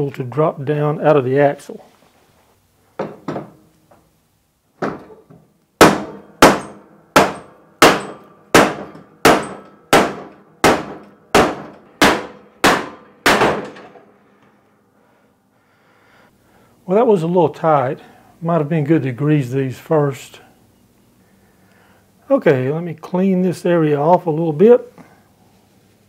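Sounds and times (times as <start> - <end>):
hammer striking wooden block: 5.8 - 13.8.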